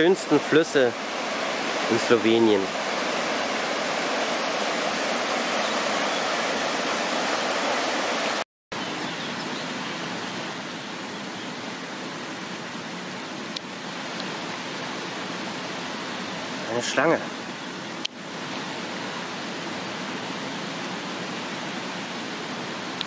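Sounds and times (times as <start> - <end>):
river rapids rushing over rocks: 0.0 - 8.4.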